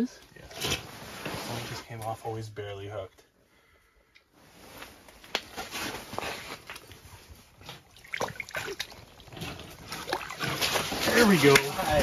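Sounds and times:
water splashing and sloshing: 5.4 - 12.0.

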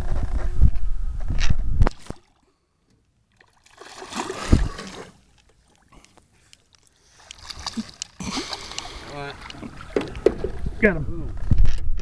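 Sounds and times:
water splashing beside hull: 3.2 - 11.4
knocks on aluminum boat: 9.9 - 10.6.

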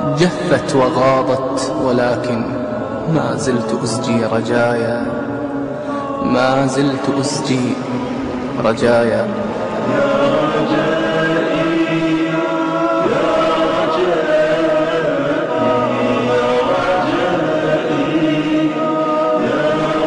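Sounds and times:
a cappella chanting voices: 0.0 - 20.0.

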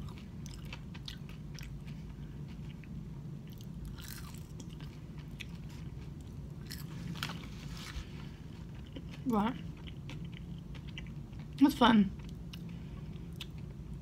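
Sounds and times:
person chewing fries: 0.0 - 14.0
steady low hum: 0.0 - 14.0.

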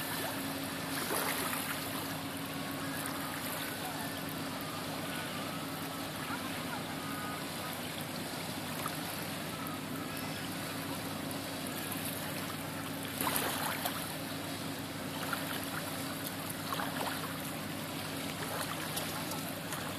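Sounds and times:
diesel engines humming: 0.0 - 19.9
small waves lapping on stones: 18.3 - 19.9.

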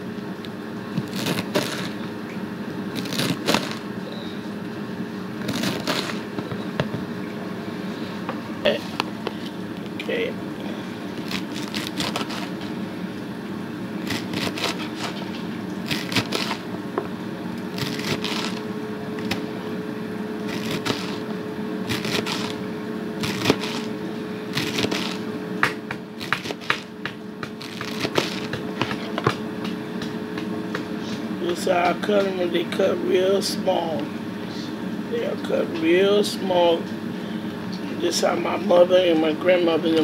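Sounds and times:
steady low hum: 0.0 - 40.0
knife slicing leaves: 1.0 - 2.0, 2.9 - 3.8, 5.4 - 6.3, 11.2 - 12.7, 14.0 - 16.6, 17.7 - 18.6, 20.4 - 21.3, 21.9 - 22.6, 23.2 - 23.9, 24.5 - 25.3, 26.2 - 29.2.

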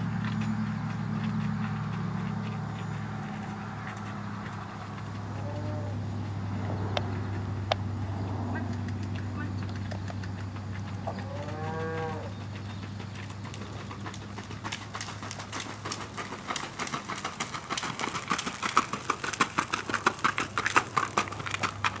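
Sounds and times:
horse hoofbeats on gravel: 0.0 - 22.0
cow mooing: 5.3 - 6.0, 11.1 - 12.4.

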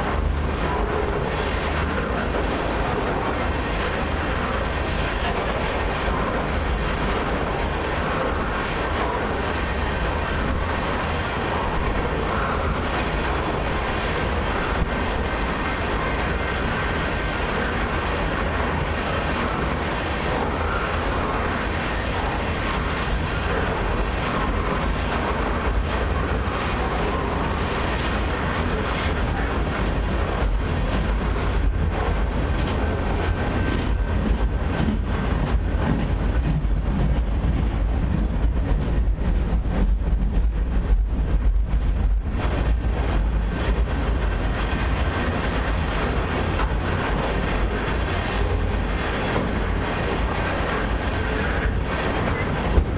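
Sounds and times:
train wheels rumbling on rails: 0.0 - 52.9
clacks over rail joints: 27.9 - 52.9.

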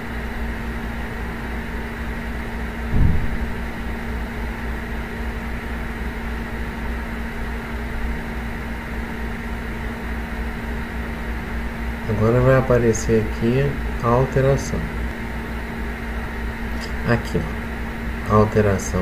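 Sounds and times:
fan humming: 0.0 - 19.0
low thump: 2.9 - 3.8.

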